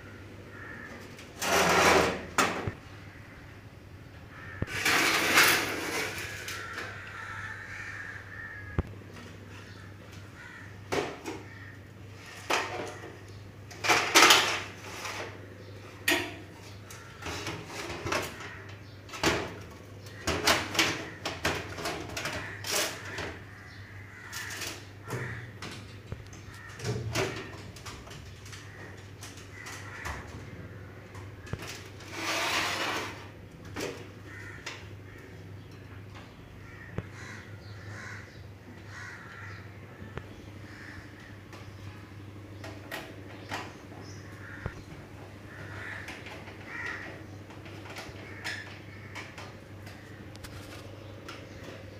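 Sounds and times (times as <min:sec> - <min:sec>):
long noisy scrape: 0:32.0 - 0:33.3.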